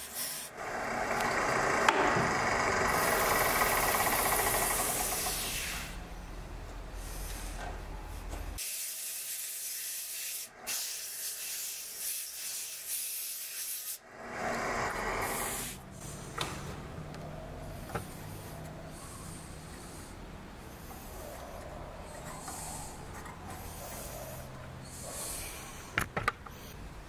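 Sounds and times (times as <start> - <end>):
lathe motor hum: 0.5 - 5.5, 14.1 - 15.9
sandpaper hissing on spinning wood: 2.9 - 6.0, 8.6 - 14.0.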